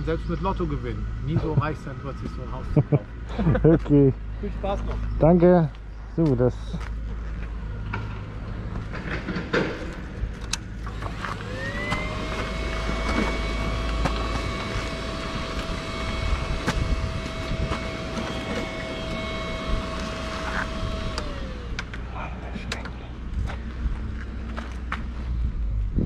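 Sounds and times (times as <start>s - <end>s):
low steady rumble: 10.0s - 26.0s
motor whine: 10.6s - 24.8s.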